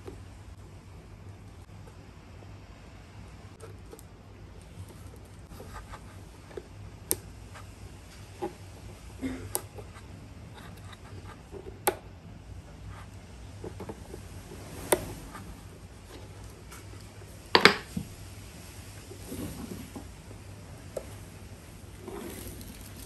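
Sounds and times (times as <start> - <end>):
low steady hum: 0.0 - 23.0
faint scrapes: 12.8 - 17.4, 18.2 - 23.0.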